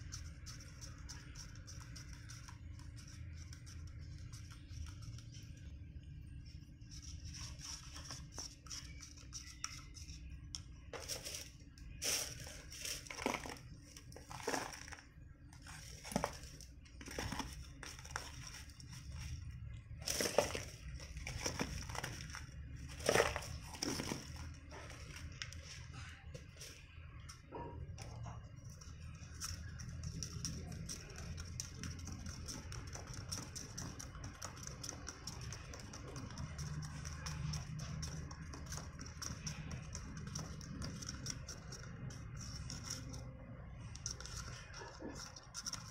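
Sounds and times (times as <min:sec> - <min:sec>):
powder pouring: 0:11.0 - 0:18.4
cardboard box handled: 0:14.2 - 0:15.0, 0:15.6 - 0:18.7, 0:20.0 - 0:24.4.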